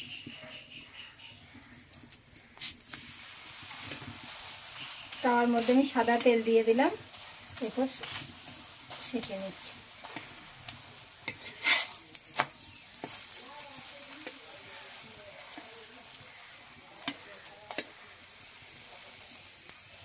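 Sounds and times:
flatbread sizzling in oil: 0:00.0 - 0:20.0
metal spatula scraping pan: 0:11.2 - 0:13.4.

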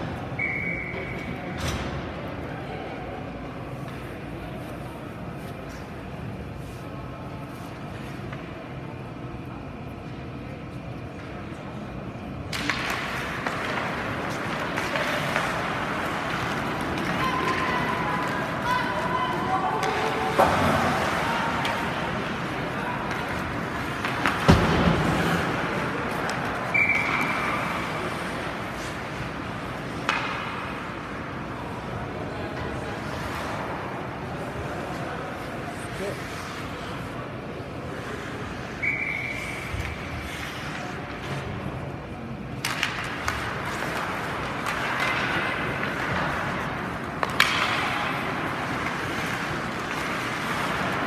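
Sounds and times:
referee's whistle: 0:00.4 - 0:01.3, 0:26.7 - 0:27.4, 0:38.8 - 0:39.7
hockey sticks and puck clacking: 0:03.6 - 0:06.7, 0:11.1 - 0:51.0
skate blades scraping ice: 0:12.5 - 0:41.9, 0:42.6 - 0:51.0.

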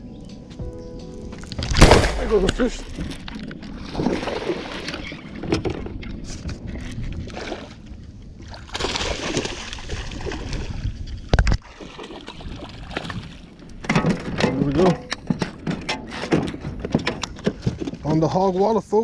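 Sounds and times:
water splashing against boat: 0:01.6 - 0:18.2
knocks and thumps on boat: 0:02.9 - 0:07.5, 0:11.4 - 0:18.3.

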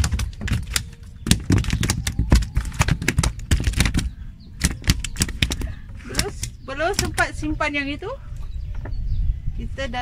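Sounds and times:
fish flapping on hard floor: 0:00.0 - 0:05.7.

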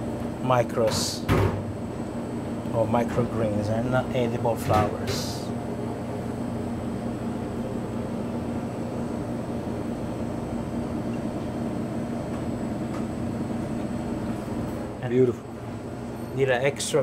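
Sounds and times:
kitchen equipment drone: 0:00.0 - 0:17.0.

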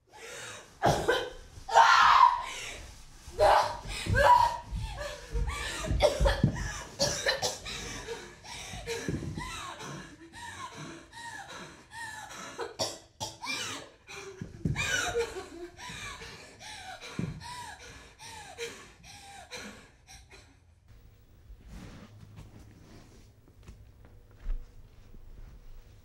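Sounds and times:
woman coughing and gasping: 0:00.8 - 0:01.4, 0:05.7 - 0:07.9, 0:12.6 - 0:13.9.

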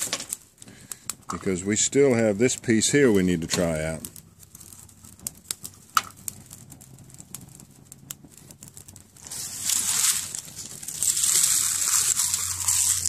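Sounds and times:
dry leaves rustling and crunching: 0:09.2 - 0:13.0.

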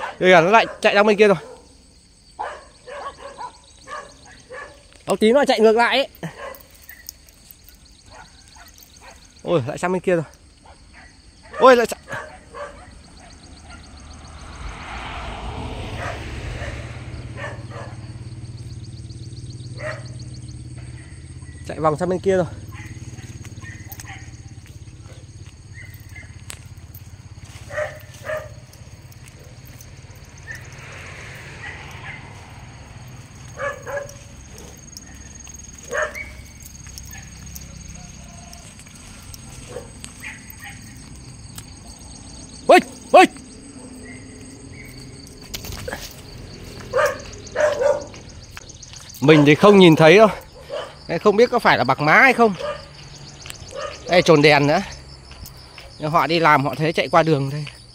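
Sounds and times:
high insect drone: 0:00.0 - 0:57.9
motor vehicle passing: 0:12.1 - 0:56.7
low rumble: 0:13.1 - 0:18.8
faint animal calls: 0:17.3 - 0:41.2.

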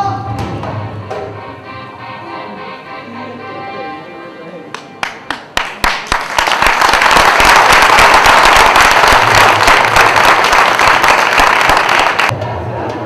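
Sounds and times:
audience applauding: 0:04.8 - 0:12.3.

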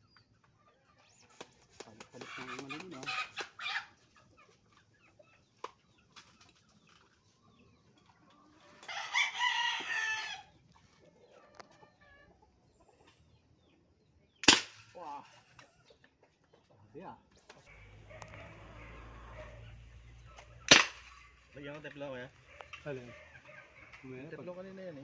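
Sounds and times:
chicken clucking: 0:00.1 - 0:14.4, 0:15.2 - 0:21.6, 0:22.4 - 0:25.0
rooster crowing: 0:08.8 - 0:10.5, 0:17.7 - 0:19.8
toy rifle shot: 0:14.4 - 0:14.9, 0:20.7 - 0:21.1.

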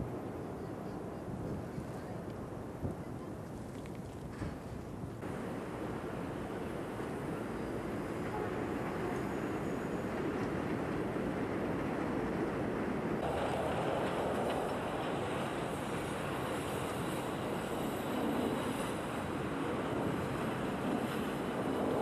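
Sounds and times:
elevated subway train running: 0:05.2 - 0:22.0.

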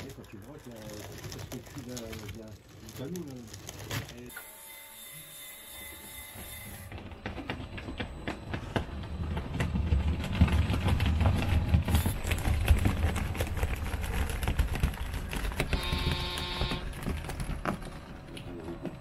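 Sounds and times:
tracks clattering: 0:06.7 - 0:19.0.

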